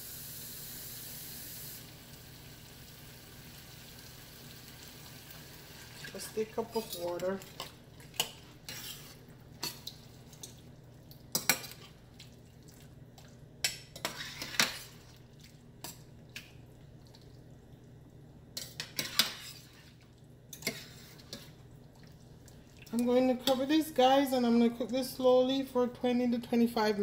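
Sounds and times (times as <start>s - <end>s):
metal spoon scraping pot: 6.6s - 9.8s, 13.9s - 14.9s, 18.6s - 19.7s.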